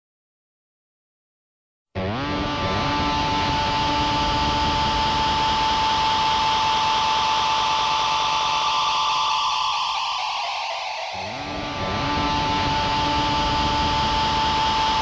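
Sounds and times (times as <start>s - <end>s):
hissing drone with high whine: 3.2s - 15.0s.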